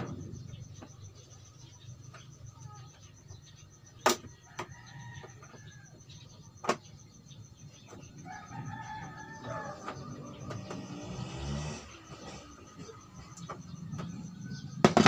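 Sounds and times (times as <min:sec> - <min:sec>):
rooster crowing: 0:04.4 - 0:06.1, 0:08.2 - 0:11.6.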